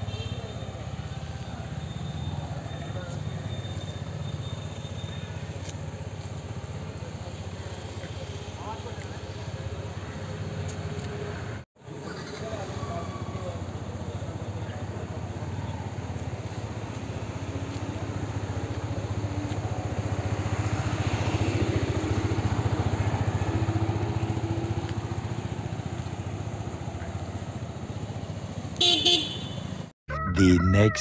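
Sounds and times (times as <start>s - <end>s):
motorcycle engine riding off: 11.9s - 28.8s.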